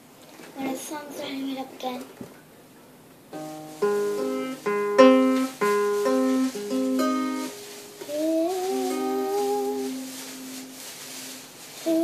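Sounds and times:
acoustic guitar strummed slowly: 3.3s - 12.0s
girl humming: 8.1s - 10.1s.

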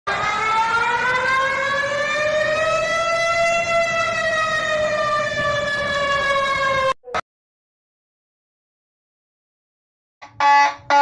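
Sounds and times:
alarm siren wailing: 0.1s - 7.2s, 10.2s - 11.0s.

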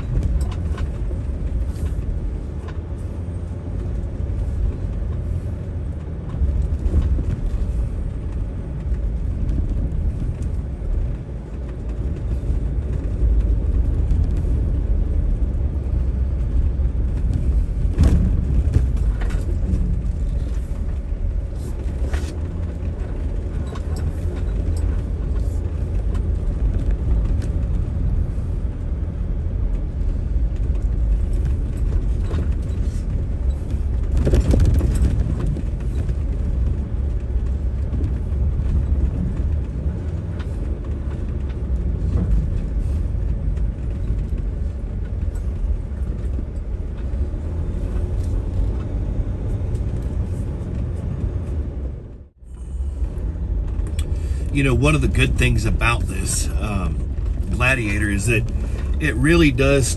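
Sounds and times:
pickup truck engine rumble: 0.0s - 59.9s
knocks and rattles: 16.5s - 27.8s, 30.6s - 51.6s.

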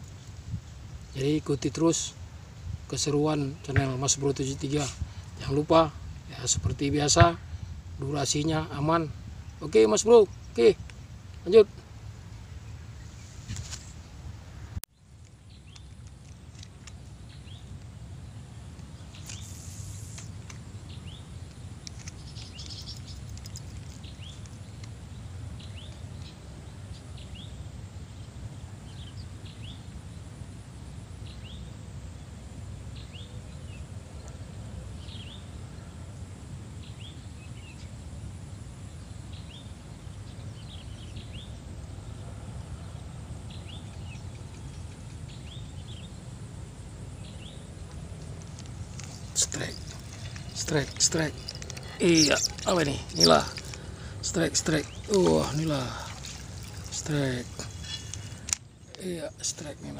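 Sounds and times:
birds chirping: 0.0s - 59.9s
low background rumble: 13.9s - 59.9s.

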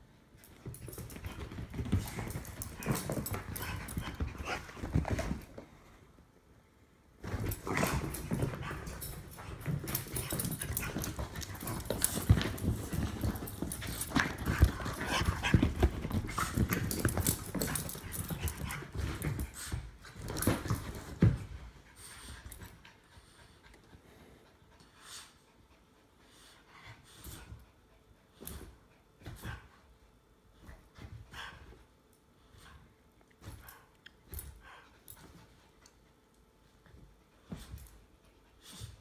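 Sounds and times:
dogs scuffling: 0.5s - 5.7s, 7.2s - 21.6s
paws scrambling: 7.3s - 19.7s.

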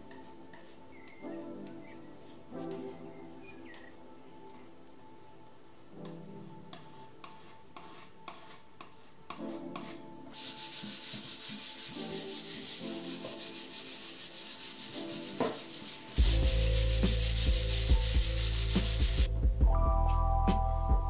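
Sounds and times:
soft background music: 0.0s - 21.0s
hand sanding wooden board: 6.8s - 19.3s.

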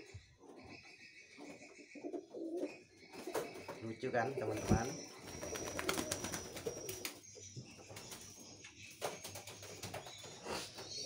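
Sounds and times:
pigeon wing flaps: 4.6s - 7.1s.

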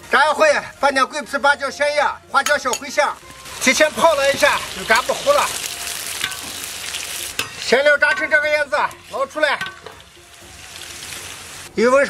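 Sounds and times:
spices sizzling in hot oil: 2.5s - 11.7s
metal ladle stirring and clinking: 5.4s - 8.4s, 9.5s - 10.0s.

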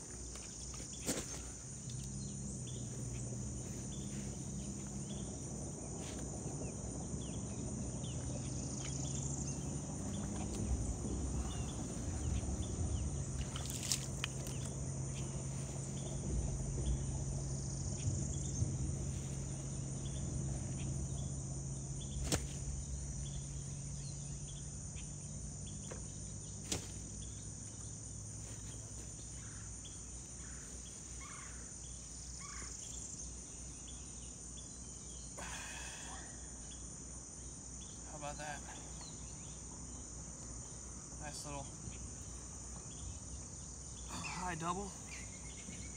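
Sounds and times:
low rumbling hum: 0.0s - 35.3s
high-pitched insect chorus: 0.0s - 45.9s.

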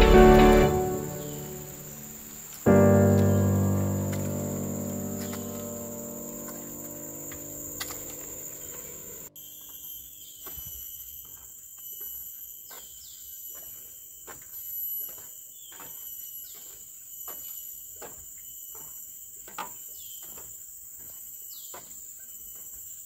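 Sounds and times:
forest insects droning: 0.0s - 12.7s
footsteps on trail: 4.0s - 8.2s.

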